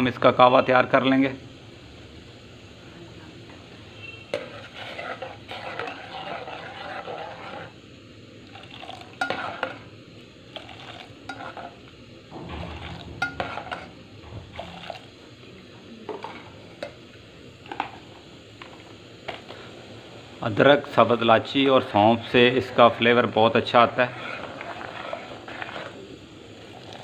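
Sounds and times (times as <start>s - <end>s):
ladle clinking against pan: 12.7s - 13.9s.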